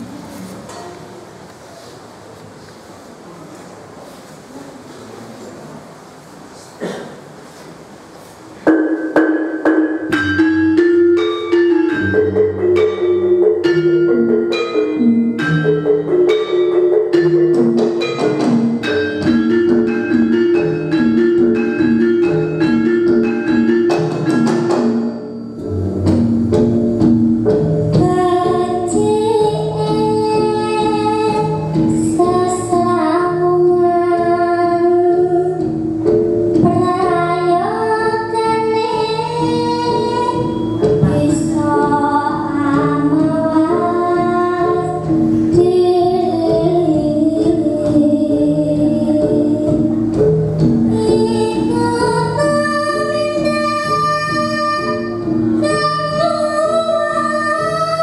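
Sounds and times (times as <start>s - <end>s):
gamelan ensemble playing: 0.0s - 1.4s, 8.7s - 58.0s
drum strokes: 8.6s - 33.4s
girl singing: 27.9s - 35.8s, 36.5s - 50.2s, 50.9s - 58.0s.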